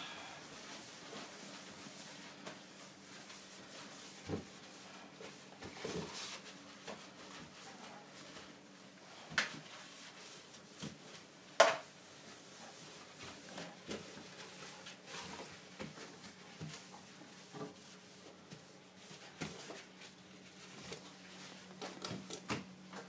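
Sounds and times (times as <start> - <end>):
kitchen roll wiping a steel sink: 0.4 - 21.8.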